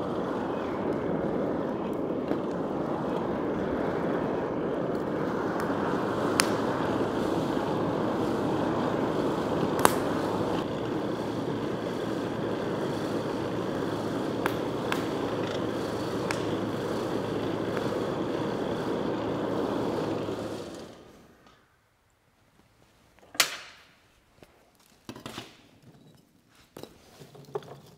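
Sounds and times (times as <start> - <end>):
fire popping and crackling: 0.0 - 20.8
forge fire rushing: 0.0 - 21.4
forge blower humming: 0.0 - 21.7.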